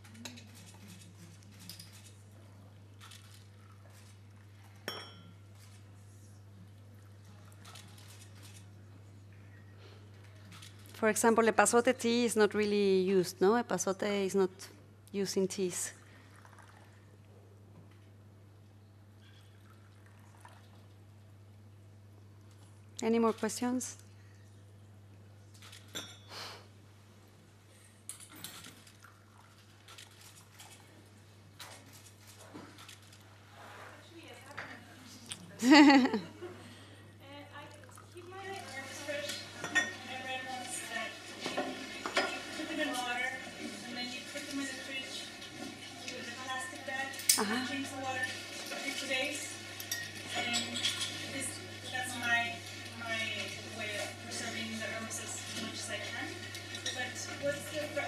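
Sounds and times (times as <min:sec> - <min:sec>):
low electrical hum: 0:00.0 - 0:58.0
glass clinking against china: 0:04.8 - 0:05.4, 0:25.9 - 0:26.3
teapot and teacups clinking: 0:04.8 - 0:05.4, 0:25.9 - 0:26.3, 0:38.8 - 0:40.6, 0:41.4 - 0:44.8, 0:45.4 - 0:58.0
tea pouring into cups: 0:16.0 - 0:17.2, 0:19.4 - 0:21.0, 0:28.5 - 0:30.8, 0:37.5 - 0:58.0.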